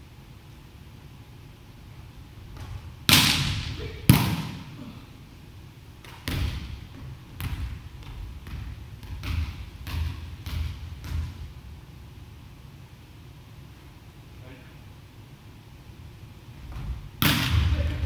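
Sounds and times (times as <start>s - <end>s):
hand slapping volleyball: 2.5s - 4.7s, 16.8s - 17.9s.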